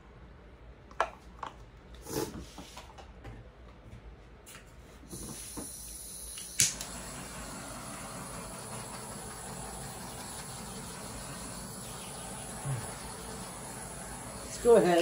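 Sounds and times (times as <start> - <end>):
gas torch hissing: 5.1 - 15.0
torch igniter click: 6.3 - 7.0.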